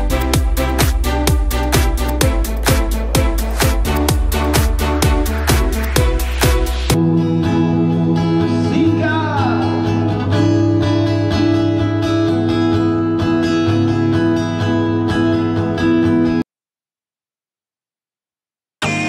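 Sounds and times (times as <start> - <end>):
acoustic guitar strumming: 7.0 - 16.4.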